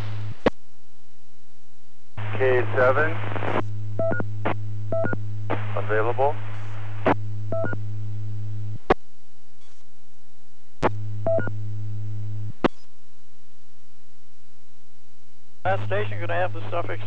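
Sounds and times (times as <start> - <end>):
radio transmission hum: 0.0 - 0.6, 2.2 - 9.0, 10.8 - 12.9, 15.6 - 17.0.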